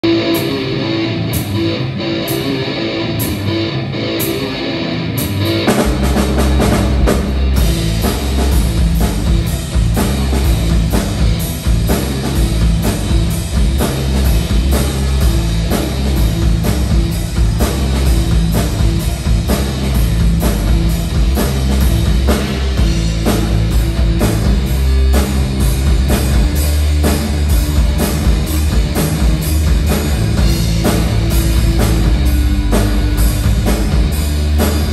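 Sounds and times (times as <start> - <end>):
rock band playing: 0.0 - 34.9.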